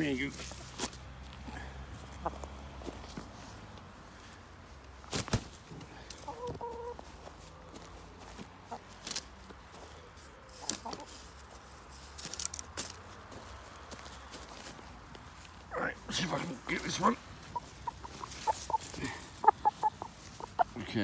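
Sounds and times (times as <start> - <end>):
chickens clucking: 1.9 - 3.8, 5.1 - 11.4, 16.1 - 21.0.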